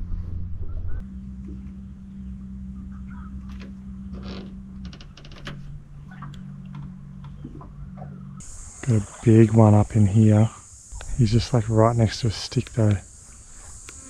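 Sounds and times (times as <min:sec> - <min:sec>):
boat motor humming: 0:00.0 - 0:14.0.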